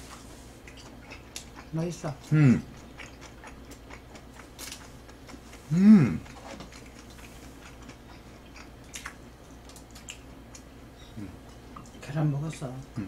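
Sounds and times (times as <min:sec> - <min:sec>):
soft chewing: 0:00.0 - 0:13.0
person humming mm: 0:02.3 - 0:02.7, 0:05.7 - 0:06.3, 0:11.1 - 0:11.4.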